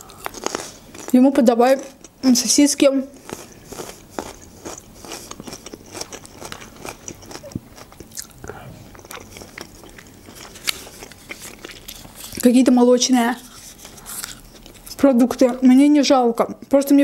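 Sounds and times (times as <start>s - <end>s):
person chewing with wet smacks: 3.1s - 12.7s, 13.4s - 15.5s.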